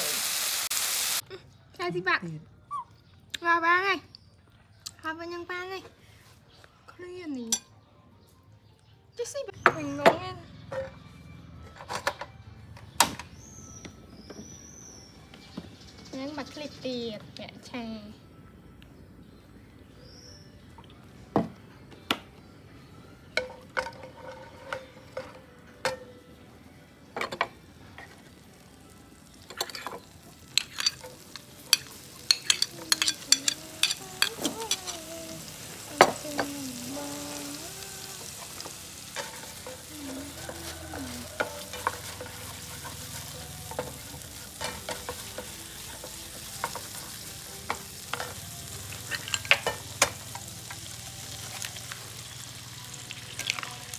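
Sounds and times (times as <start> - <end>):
oil sizzling in a frying pan: 0.0 - 1.2, 28.1 - 53.9.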